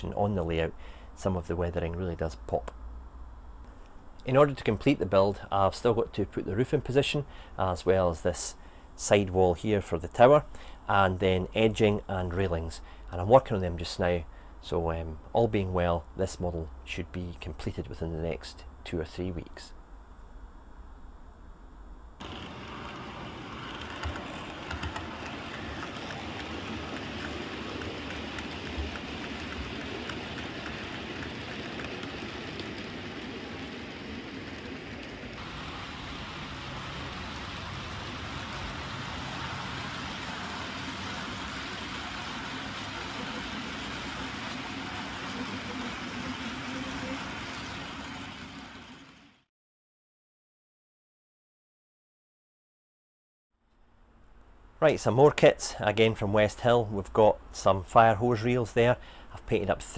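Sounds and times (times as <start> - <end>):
model train wheels rumbling on track: 22.2 - 49.4.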